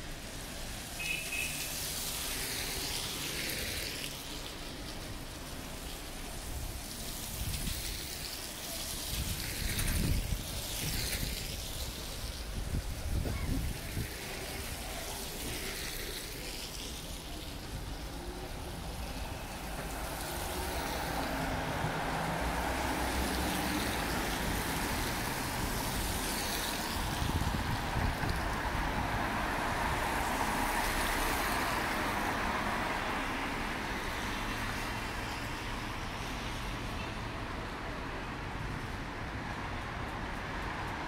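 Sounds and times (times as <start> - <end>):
passing vehicle engines: 0.0 - 41.0
tyre hiss on wet road: 0.0 - 41.0.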